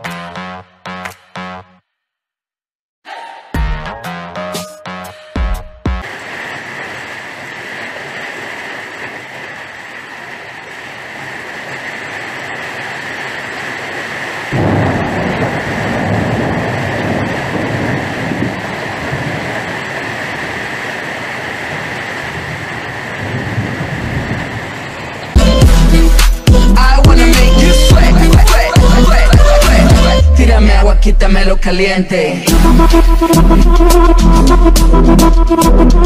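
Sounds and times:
rain falling: 0:06.0 - 0:25.8
deep rumble: 0:14.5 - 0:20.7, 0:21.8 - 0:31.9.

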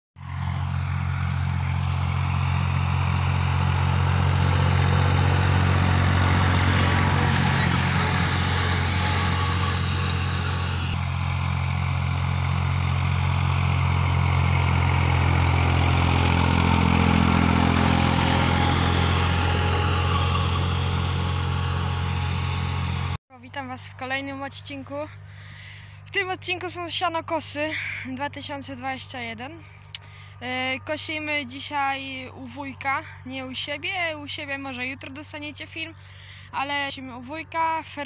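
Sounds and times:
rotary mower cutting grass: 0:00.2 - 0:23.2
tractor diesel engine running: 0:00.2 - 0:23.2.

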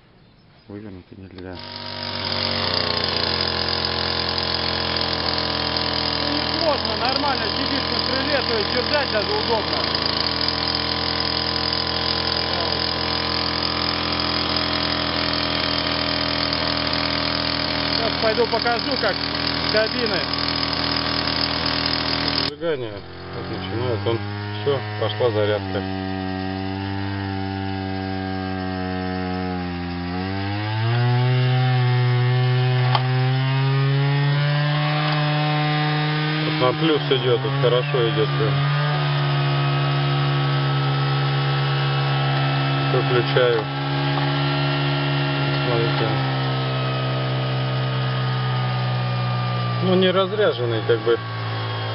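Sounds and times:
chainsaw engine running: 0:01.4 - 0:51.9
sharp click: 0:32.8 - 0:33.2.

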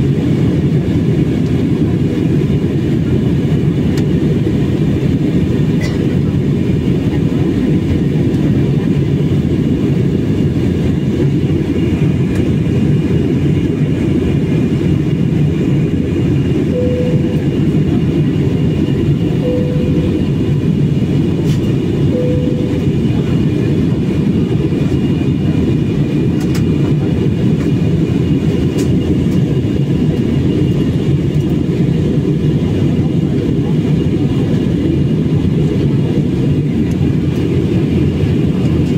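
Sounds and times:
jet cabin engine rush: 0:00.0 - 0:38.9
short faint tones: 0:16.8 - 0:17.6, 0:19.4 - 0:20.4, 0:22.1 - 0:23.0.

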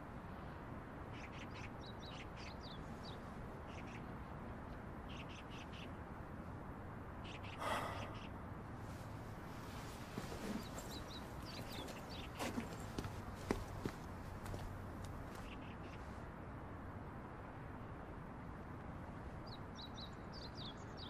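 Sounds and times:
small birds chirping: 0:01.1 - 0:06.0, 0:07.1 - 0:16.2, 0:19.4 - 0:21.0.

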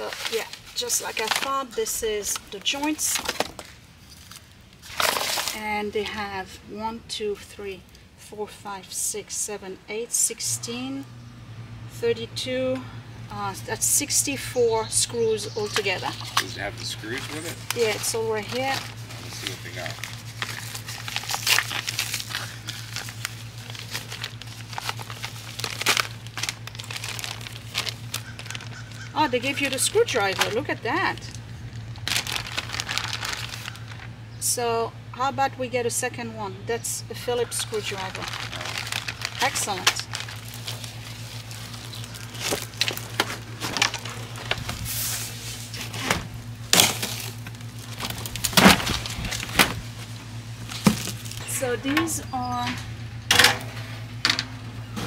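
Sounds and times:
packaging crinkling and rustling: 0:00.0 - 0:05.7, 0:15.6 - 0:34.1, 0:37.6 - 0:51.4.

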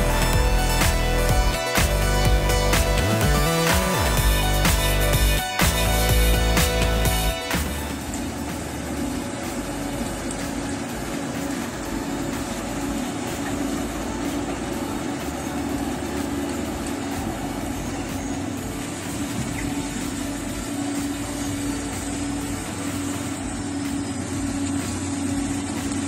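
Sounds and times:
diesel engine humming: 0:00.0 - 0:26.0.

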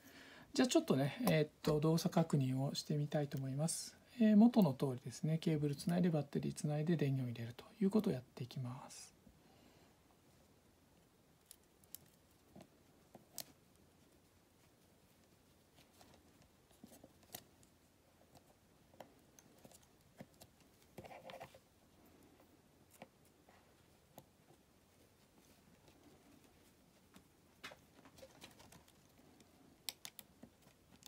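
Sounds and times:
soft rustle: 0:00.8 - 0:31.0
small clicks and taps: 0:27.1 - 0:31.0.

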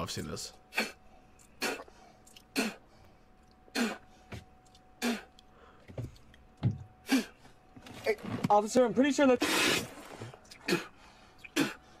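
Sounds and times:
man spitting: 0:00.7 - 0:02.9, 0:03.7 - 0:04.1, 0:05.0 - 0:05.4, 0:07.0 - 0:07.4, 0:09.4 - 0:11.9.

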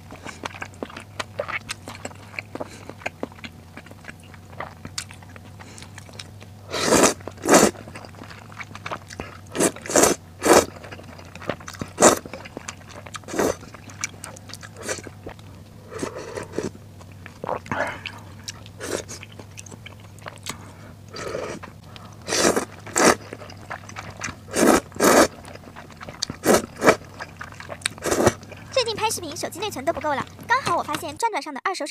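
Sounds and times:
slurping noodles: 0:00.0 - 0:31.0
moist chewing: 0:00.0 - 0:31.2.

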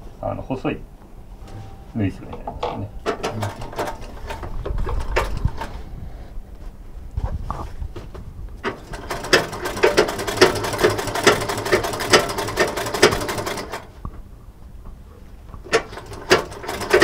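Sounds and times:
sewing machine stitching: 0:03.1 - 0:05.8, 0:08.6 - 0:13.9, 0:15.7 - 0:17.0.

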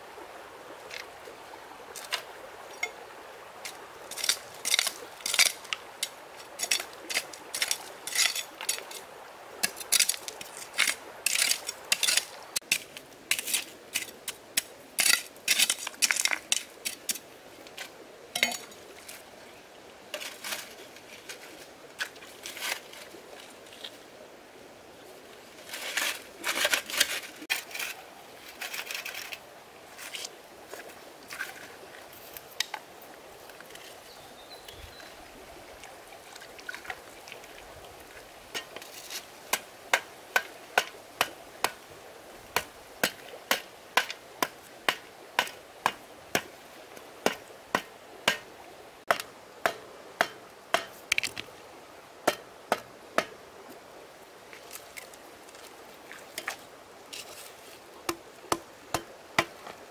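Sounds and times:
rustling: 0:25.6 - 0:32.7.

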